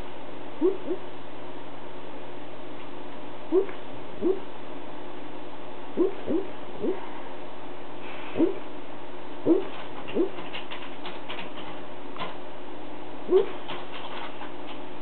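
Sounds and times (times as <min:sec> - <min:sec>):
dog sleep-barking muffled woofs: 0:08.2 - 0:08.7, 0:09.5 - 0:10.6, 0:13.3 - 0:13.9.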